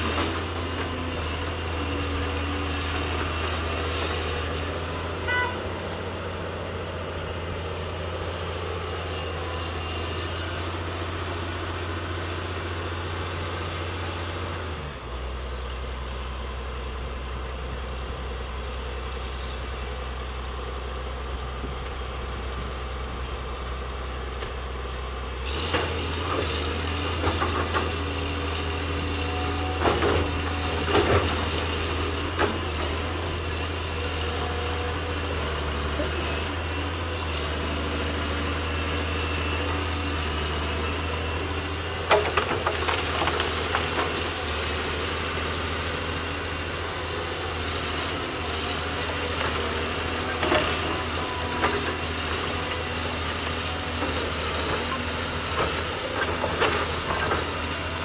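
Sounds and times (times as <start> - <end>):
diesel engine idling: 0.4 - 25.5.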